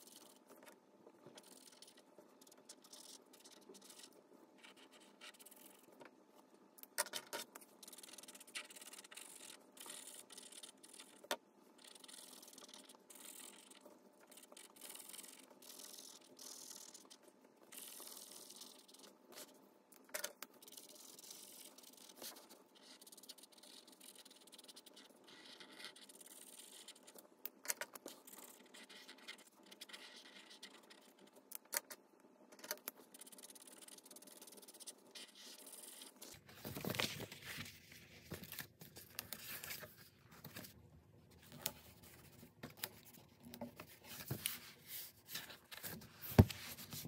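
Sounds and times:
marker scratching on paper: 1.3s - 6.0s, 7.2s - 19.6s, 20.6s - 27.2s, 28.0s - 31.3s, 32.9s - 36.8s, 43.8s - 47.0s.

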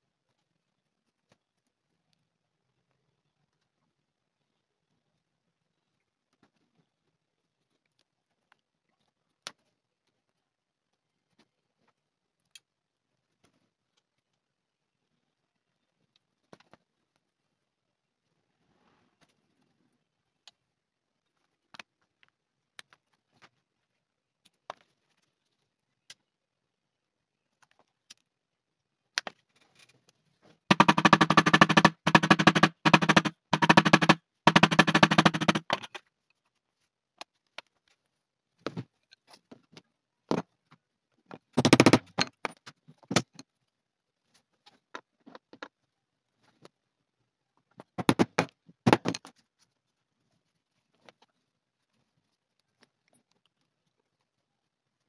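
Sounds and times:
sharp metallic tapping: 30.7s - 36.0s.

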